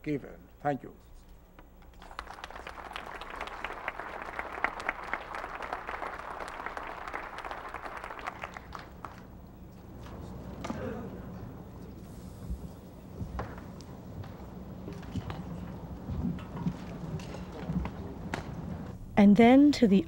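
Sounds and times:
crowd applauding: 1.9 - 9.4.

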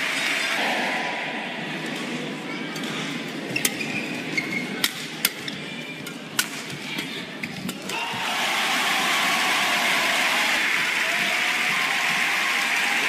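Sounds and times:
crowd applause: 8.0 - 13.0.

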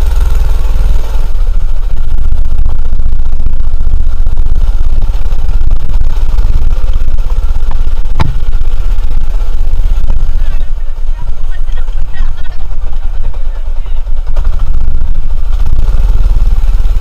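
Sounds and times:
small buggy engine running: 0.0 - 17.0
sharp knock: 8.2 - 8.5.

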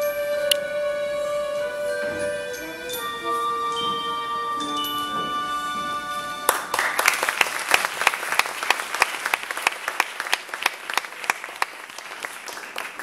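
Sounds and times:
held musical chord: 0.0 - 7.3
audience applause: 5.6 - 13.0.

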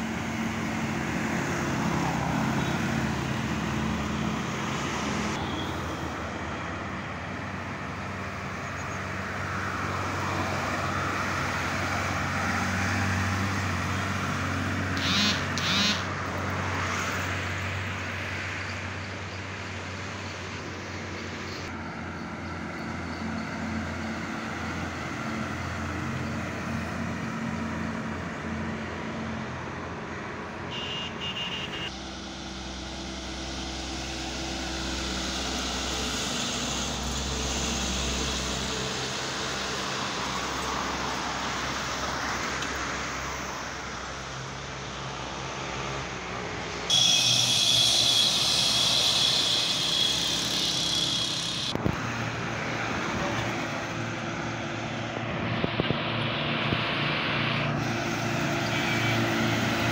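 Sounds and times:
heavy diesel trucks passing: 0.0 - 59.9
high-pitched horn toots: 15.0 - 16.1, 30.7 - 32.0, 46.9 - 51.8, 58.6 - 59.5.

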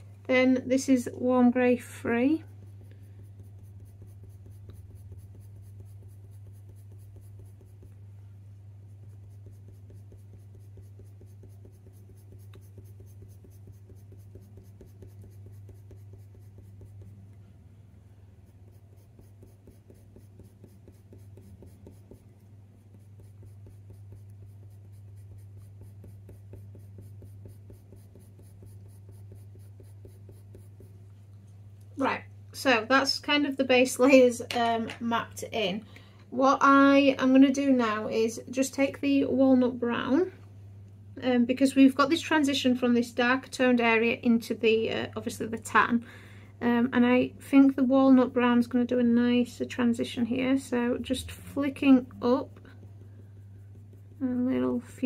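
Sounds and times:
steady low hum: 0.0 - 55.0
pencil scratching on paper: 0.8 - 8.0, 8.8 - 17.4, 18.3 - 31.0, 50.8 - 55.0.

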